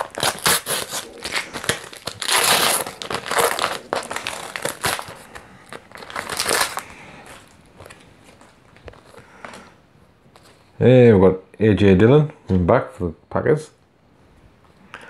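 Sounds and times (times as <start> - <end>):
wrapper crinkling: 0.0 - 9.6.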